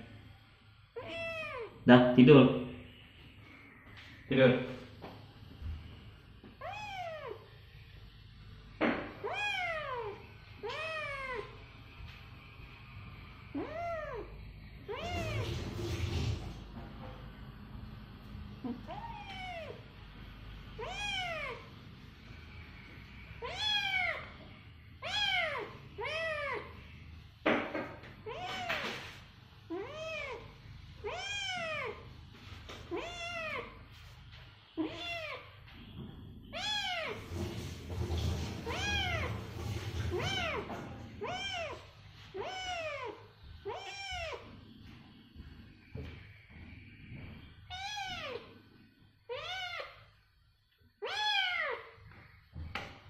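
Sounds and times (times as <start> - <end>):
kitten meowing: 1.0 - 1.8, 6.6 - 7.4, 9.2 - 11.5, 13.5 - 14.3, 14.9 - 15.6, 18.7 - 19.8, 20.8 - 21.7, 23.4 - 24.3, 25.0 - 26.7, 31.0 - 32.0, 32.9 - 33.8, 34.8 - 35.5, 36.5 - 37.2, 38.6 - 39.3, 40.1 - 44.5, 47.7 - 48.5, 49.3 - 50.0, 51.0 - 52.0.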